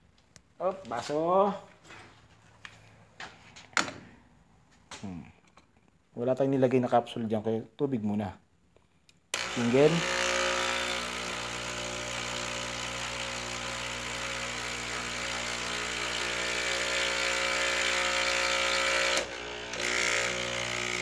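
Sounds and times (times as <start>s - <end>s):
coffee machine pump buzzing: 9.4s - 21.0s.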